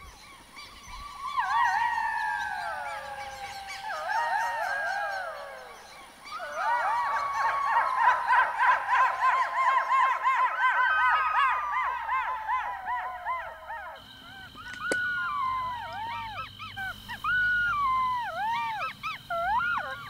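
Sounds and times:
jackals howling: 0.0s - 20.0s.

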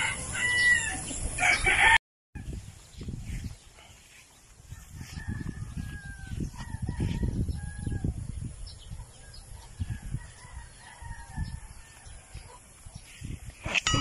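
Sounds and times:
rooster crowing: 0.0s - 2.0s, 4.7s - 8.2s.

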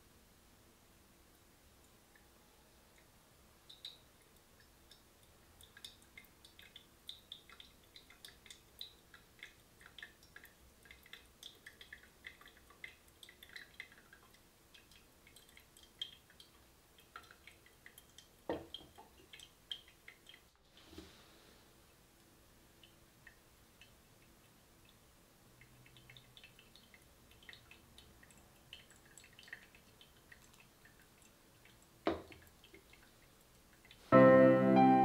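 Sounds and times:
water dripping onto coffee grounds: 3.0s - 20.8s, 22.2s - 34.0s
kettle knocking on cooktop: 18.5s - 18.7s.

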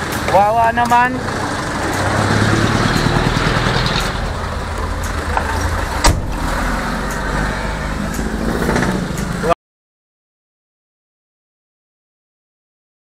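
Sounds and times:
car engine and road noise: 0.0s - 9.6s.

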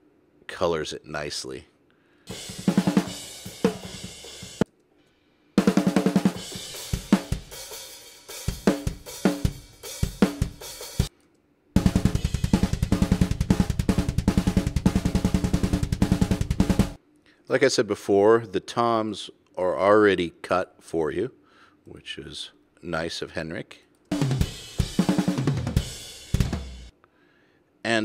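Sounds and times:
snare drum hits: 2.4s - 4.6s.

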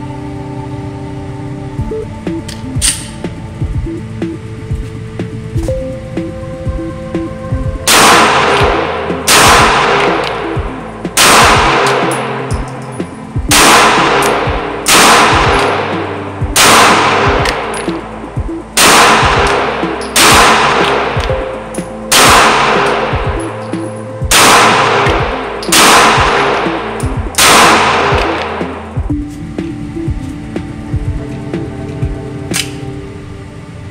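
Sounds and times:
quiet background music: 0.0s - 33.9s
pistol shots echoing indoors: 7.8s - 10.4s, 11.2s - 12.5s, 13.5s - 15.8s, 16.6s - 17.9s, 18.8s - 21.3s, 22.1s - 23.6s, 24.3s - 28.6s.

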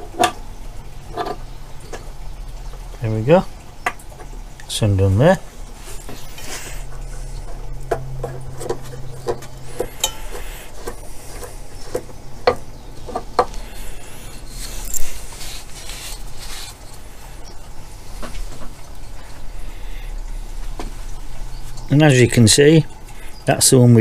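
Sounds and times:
clicks and knocks of metal and wood: 0.0s - 3.0s, 6.0s - 13.7s.

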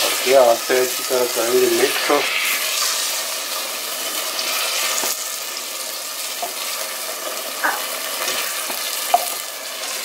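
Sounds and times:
sauce sizzling in pot: 0.0s - 10.0s.

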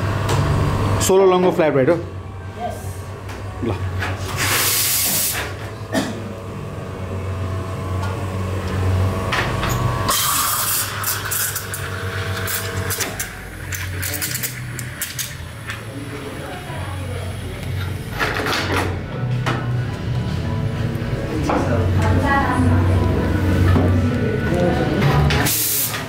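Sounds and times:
steam hiss: 4.4s - 5.4s, 25.5s - 26.0s
espresso machine pump humming: 6.4s - 18.4s, 21.7s - 26.0s
espresso running into cup: 8.7s - 18.4s
cups and metal clinking: 9.4s - 16.7s.

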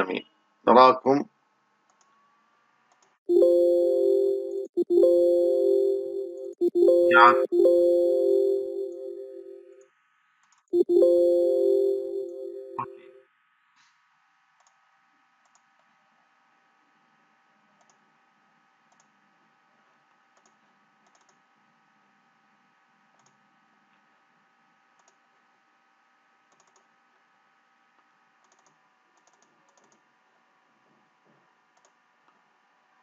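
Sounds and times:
faint steady hum: 3.3s - 9.7s, 10.8s - 13.0s
computer mouse clicks: 17.8s - 18.0s, 18.9s - 19.1s, 20.4s - 21.4s, 23.2s - 23.4s, 25.0s - 25.2s, 26.5s - 26.9s, 28.4s - 30.1s, 31.8s - 32.4s.

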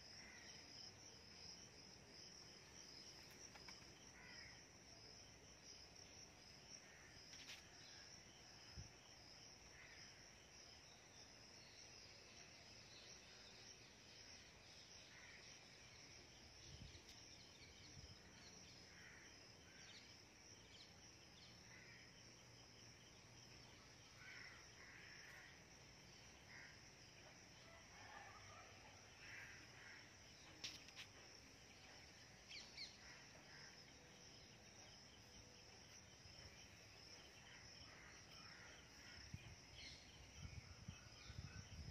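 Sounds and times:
insects trilling: 0.0s - 41.9s.

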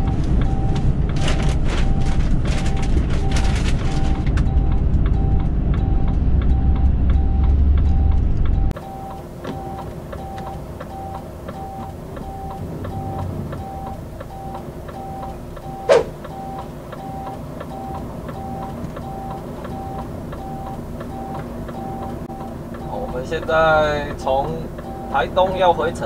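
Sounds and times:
truck engine humming: 0.0s - 26.0s
turn signal ticking and beeping: 0.0s - 26.0s.

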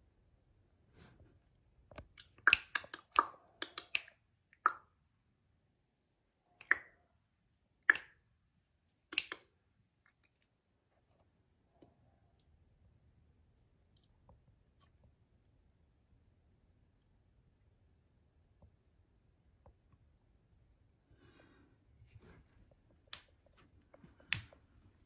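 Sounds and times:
sharp finger clicks and snaps: 2.0s - 4.9s, 6.6s - 7.0s, 7.8s - 8.2s, 9.1s - 9.6s.

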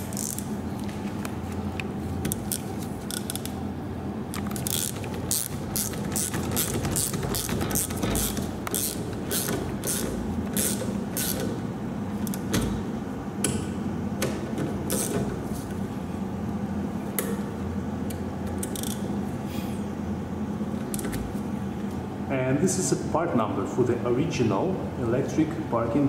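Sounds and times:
ratchet clicking: 4.4s - 11.5s, 18.6s - 19.0s.

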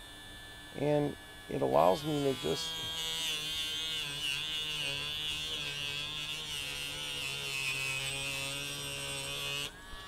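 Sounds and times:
rotary nail grinder buzzing: 0.8s - 10.0s.

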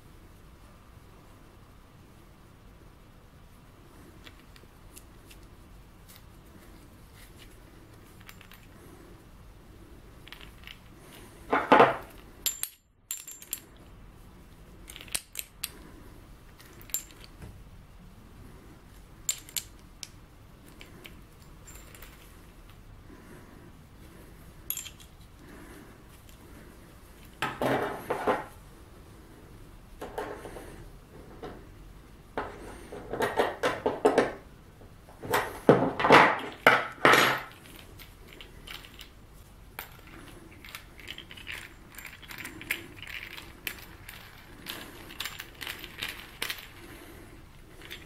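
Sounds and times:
wrench and nut clinking on metal: 11.6s - 13.8s, 16.6s - 17.4s, 20.7s - 22.3s, 24.7s - 25.2s.

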